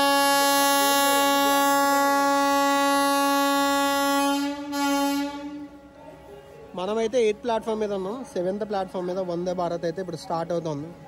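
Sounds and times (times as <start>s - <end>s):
train horn blast: 0.0s - 6.0s.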